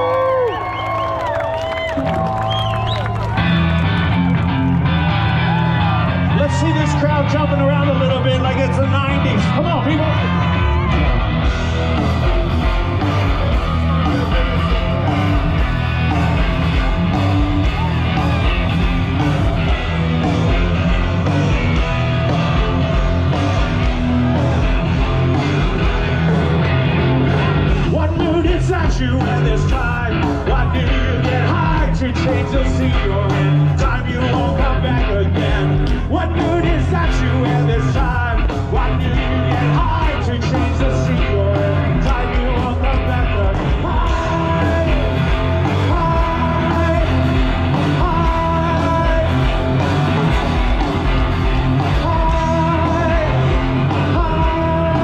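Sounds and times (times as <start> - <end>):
live rock band playing loudly: 0.0 - 55.0
person singing: 27.3 - 55.0.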